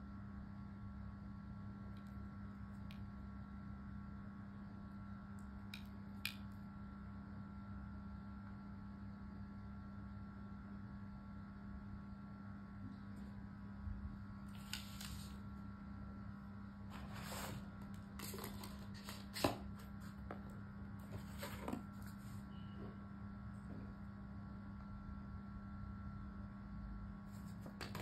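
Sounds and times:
steady low hum: 0.0s - 28.0s
paper rustling and tapping: 18.2s - 20.5s, 27.4s - 28.0s.

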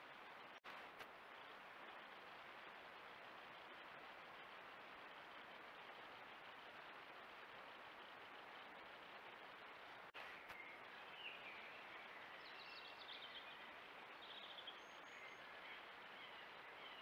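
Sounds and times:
microphone hiss: 0.0s - 17.0s
faint bird chirps and trills: 8.0s - 17.0s.

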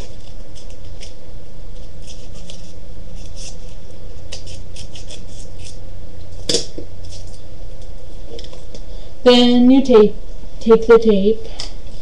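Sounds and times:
scissors snipping paper: 1.8s - 5.8s.

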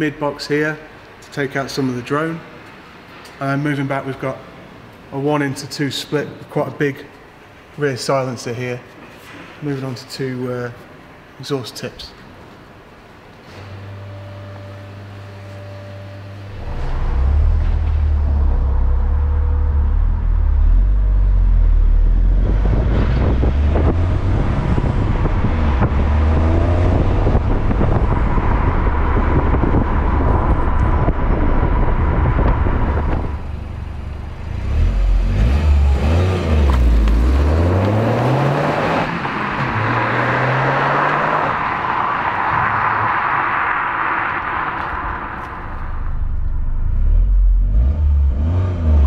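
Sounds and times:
car engine accelerating: 13.6s - 49.0s.

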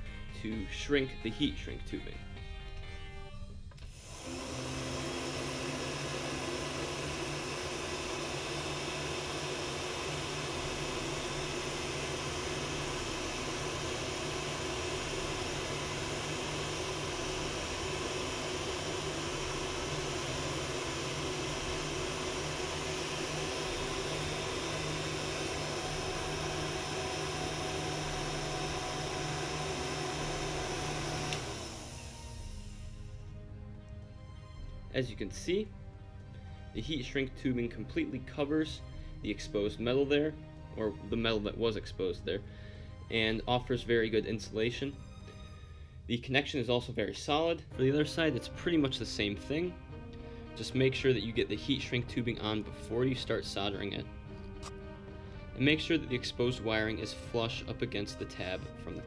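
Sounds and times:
heat gun fan blowing: 3.8s - 33.2s.

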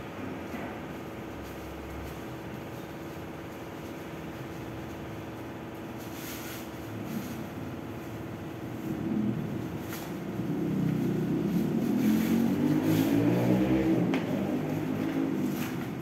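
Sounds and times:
steady low hum: 0.0s - 16.0s
nylon rustling: 10.9s - 16.0s.

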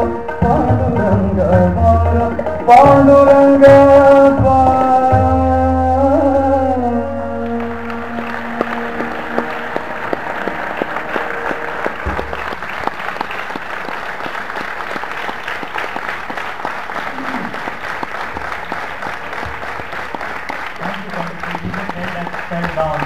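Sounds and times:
audience applauding: 7.4s - 23.0s.

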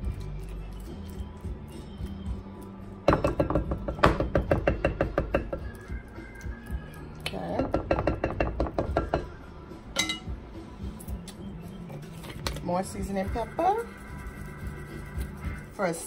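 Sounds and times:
wooden spoon tapping glass bowl: 3.1s - 5.6s, 7.6s - 9.3s.

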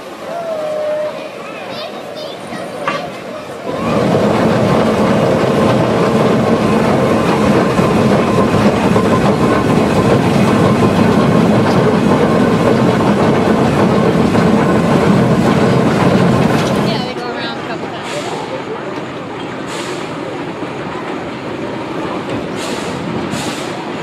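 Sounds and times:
steam locomotive clattering: 0.0s - 24.0s.

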